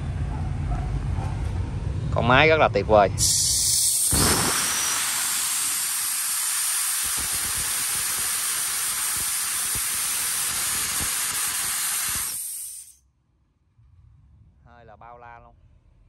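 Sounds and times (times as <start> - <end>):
compressed air hissing from tank: 3.2 - 13.0.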